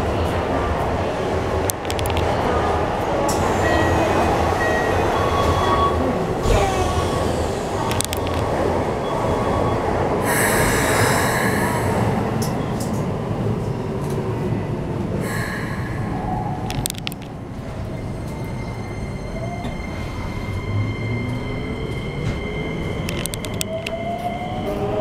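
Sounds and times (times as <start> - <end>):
train rumbling at platform: 0.0 - 25.0
sharp clicks: 1.7 - 2.4, 7.9 - 8.5, 16.7 - 17.3, 23.0 - 24.0.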